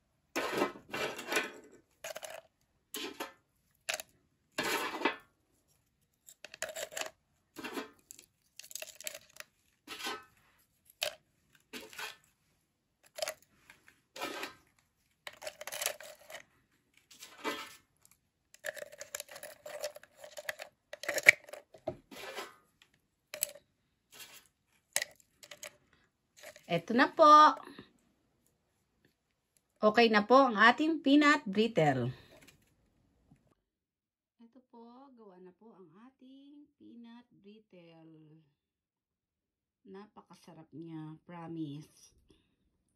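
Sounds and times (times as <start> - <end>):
brittle clinking into plastic tub: 0.5 - 2.4, 3.0 - 5.2, 6.3 - 10.2, 13.1 - 13.4, 15.3 - 16.4, 18.6 - 21.8, 23.4 - 23.6, 25.0 - 25.8, 26.4 - 26.8
paper rustling: 13.1 - 22.5.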